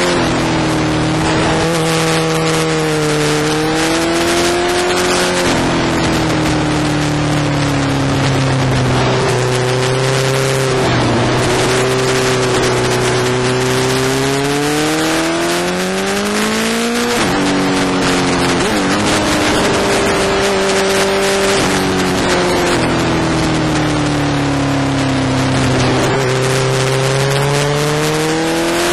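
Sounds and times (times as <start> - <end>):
motorcycle engine revving: 0.0 - 28.9
wind rushing over microphone: 0.0 - 28.9.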